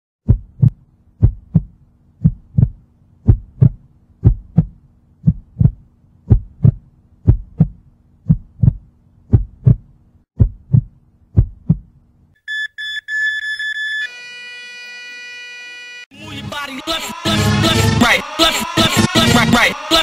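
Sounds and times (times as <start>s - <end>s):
heartbeat thumps: 0.2s - 12.0s
steady low hum: 0.3s - 12.3s.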